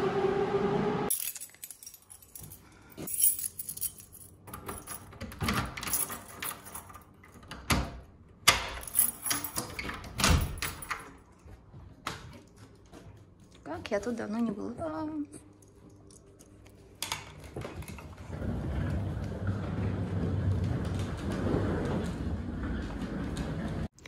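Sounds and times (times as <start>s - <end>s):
train motor whine: 0.0s - 1.1s
keys jangling on a ring: 1.1s - 7.3s, 8.7s - 11.4s
key clicking in a door lock: 4.5s - 11.2s.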